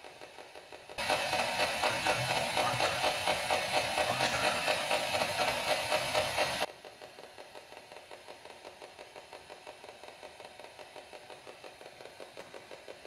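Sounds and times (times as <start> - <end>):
choppy static pulses: 1.0 - 6.7
loud radio static hiss: 1.0 - 6.7.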